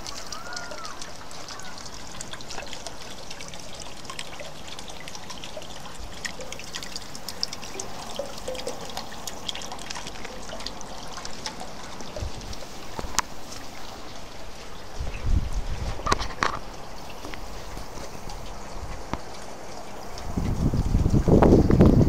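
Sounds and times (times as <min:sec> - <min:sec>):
drips splashing: 0:00.0 - 0:22.0
rain falling: 0:00.0 - 0:22.0
water trickling: 0:00.0 - 0:22.0.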